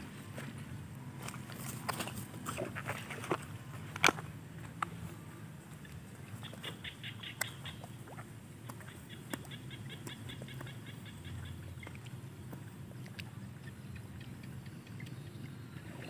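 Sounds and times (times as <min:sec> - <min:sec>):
low steady hum: 0:00.0 - 0:16.0
frogs calling: 0:05.6 - 0:16.0.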